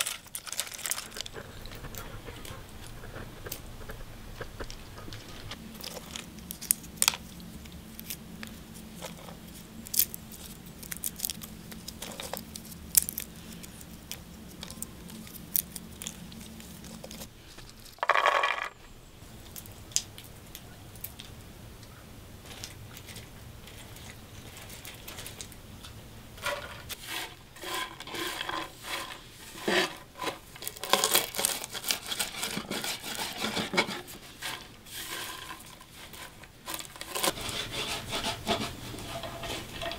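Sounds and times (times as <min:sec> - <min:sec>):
walnut shells cracking: 0:00.0 - 0:02.0, 0:05.7 - 0:18.8, 0:30.3 - 0:32.6
nuts scraping in clay bowl: 0:00.0 - 0:19.0, 0:26.3 - 0:39.9
low steady hum: 0:00.0 - 0:39.9.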